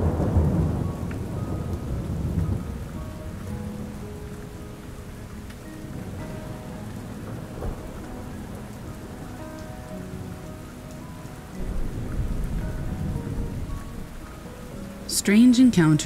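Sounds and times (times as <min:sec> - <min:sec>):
low rumble of thunder: 0:00.0 - 0:04.0, 0:06.0 - 0:15.1
steady rain falling: 0:00.0 - 0:16.0.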